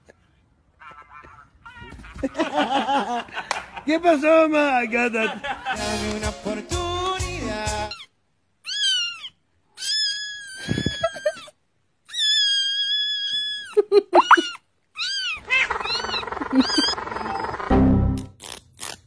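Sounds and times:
kitten meowing: 0:08.6 - 0:11.5, 0:12.1 - 0:17.5.

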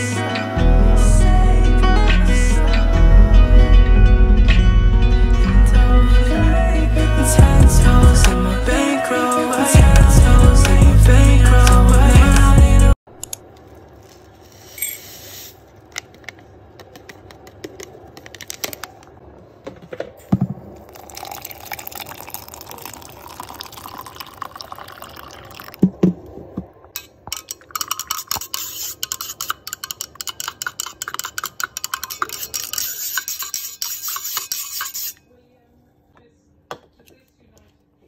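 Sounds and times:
water poured into metal tumbler: 0:20.8 - 0:25.8
spoon clinking against metal: 0:27.0 - 0:35.3.

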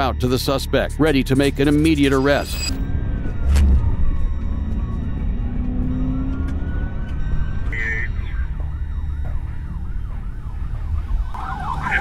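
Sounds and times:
engine and road rumble: 0:00.0 - 0:12.0
police siren yelping: 0:04.9 - 0:12.0.

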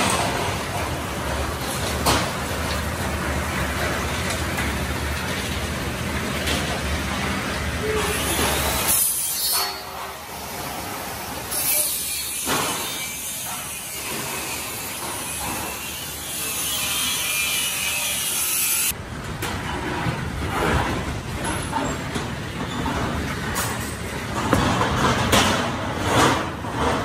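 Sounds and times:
tools scraping and sawing: 0:07.9 - 0:19.0.

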